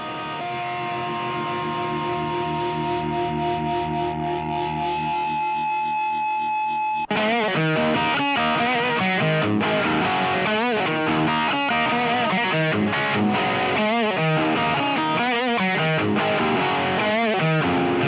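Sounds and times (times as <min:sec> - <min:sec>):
rock music with electric guitar: 0:00.0 - 0:18.0.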